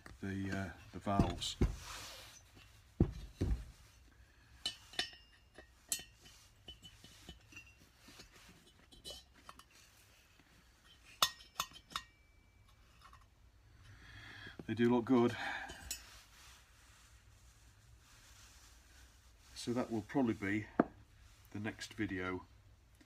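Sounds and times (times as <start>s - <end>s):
light metal clinks: 4.6s - 9.9s, 10.8s - 13.4s, 15.3s - 16.2s.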